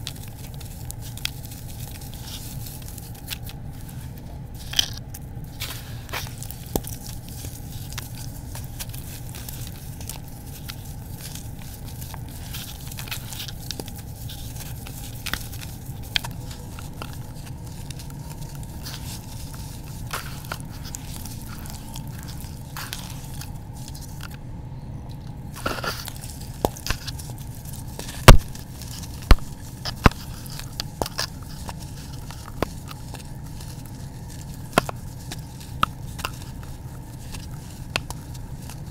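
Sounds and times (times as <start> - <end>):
hands squelching wet gritty paste: 0.0 - 24.4
small crackles: 0.0 - 24.4, 25.0 - 38.9.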